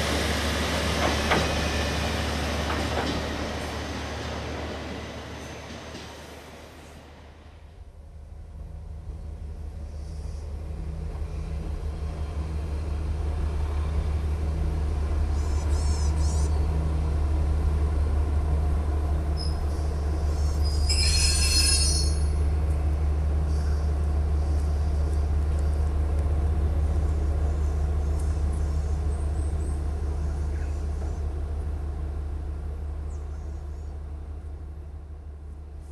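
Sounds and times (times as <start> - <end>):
diesel railcar engine drone: 0.0 - 35.9
high squeal: 20.5 - 22.4.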